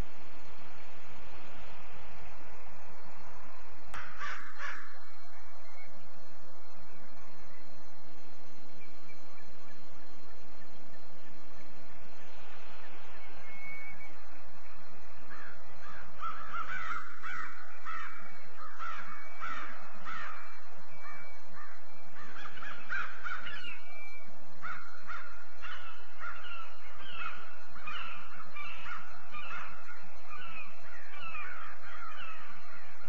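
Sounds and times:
crows cawing: 4.0s - 5.0s, 15.3s - 23.8s, 24.6s - 32.8s.

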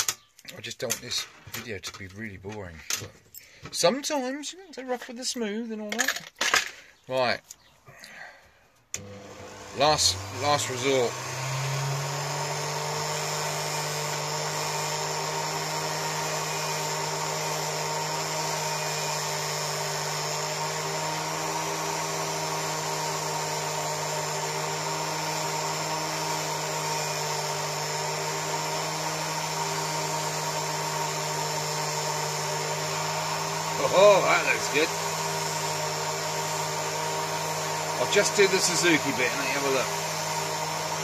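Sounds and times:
rotary tool running: 9.3s - 41.0s.

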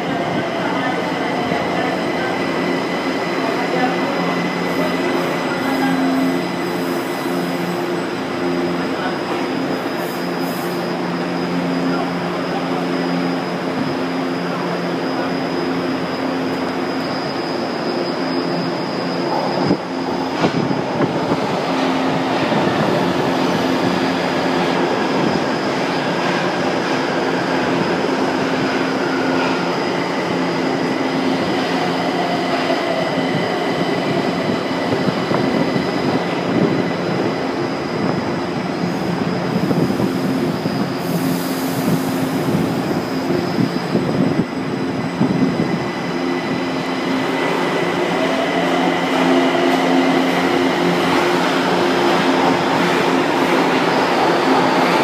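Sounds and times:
subway train equipment humming: 0.0s - 55.0s
loud station din: 42.5s - 55.0s.

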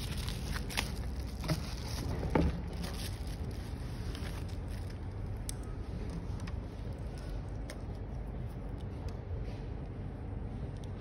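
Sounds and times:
bubble wrap crinkling: 0.0s - 8.8s
low background hum: 0.0s - 11.0s.

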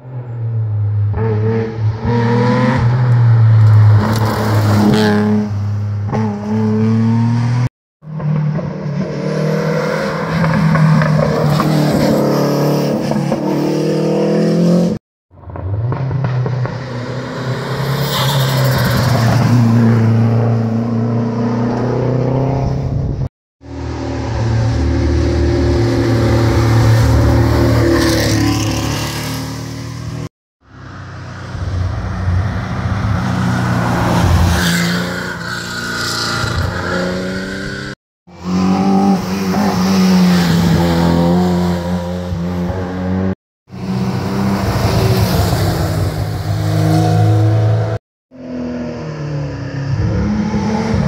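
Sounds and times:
rally car engines revving past: 23.8s - 51.0s.

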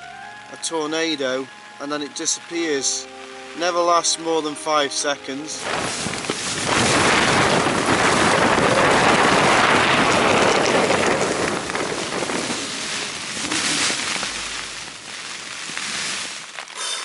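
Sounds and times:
rain drumming on tent fabric: 0.0s - 17.0s
wind gust buffeting a tent: 5.6s - 16.7s.

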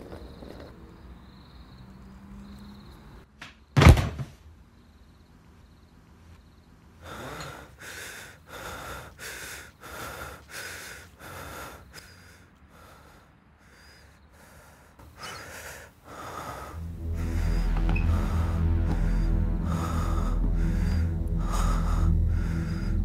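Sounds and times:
man breathing heavily: 6.9s - 23.0s.

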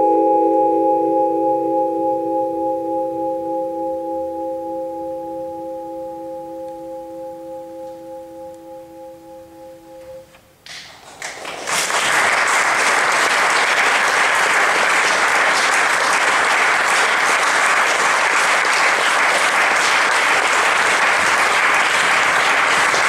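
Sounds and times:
audience applauding: 10.7s - 23.0s.

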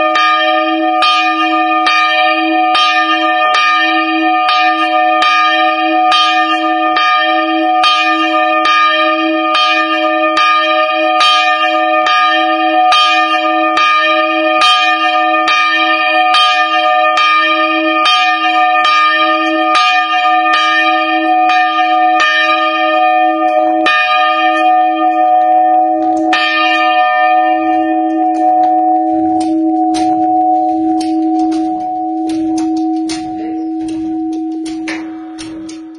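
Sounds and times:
church bell ringing: 0.0s - 35.9s
bell humming: 12.9s - 35.9s.

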